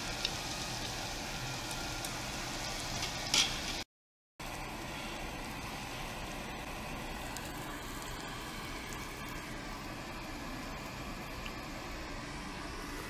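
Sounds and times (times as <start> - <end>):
meat sizzling on grill plate: 0.0 - 3.8.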